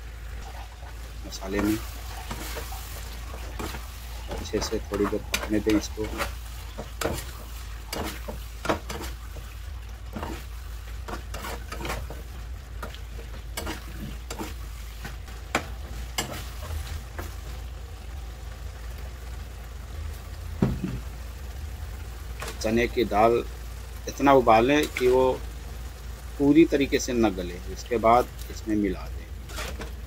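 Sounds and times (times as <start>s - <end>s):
low steady hum: 0.0s - 30.0s
masala sizzling: 0.0s - 30.0s
spoon scraping a frying pan: 1.6s - 17.4s, 29.4s - 30.0s.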